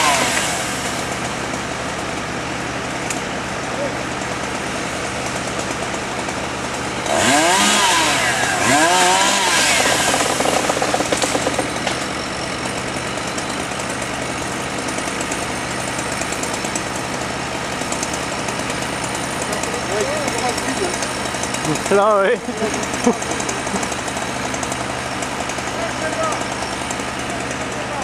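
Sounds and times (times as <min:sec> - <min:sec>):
chainsaw revving: 0:00.0 - 0:02.2, 0:04.0 - 0:28.0
fire truck engine idling: 0:00.5 - 0:07.1, 0:10.4 - 0:28.0.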